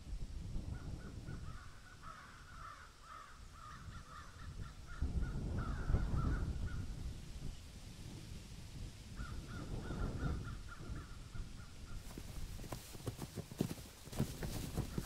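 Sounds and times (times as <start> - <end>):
birds calling: 9.2 - 15.0.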